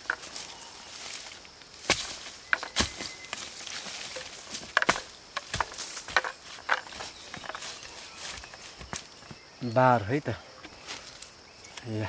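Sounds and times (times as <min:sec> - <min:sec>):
knocks and crunches on dry ground: 0:00.0 - 0:09.6
faint outdoor background: 0:00.0 - 0:12.0.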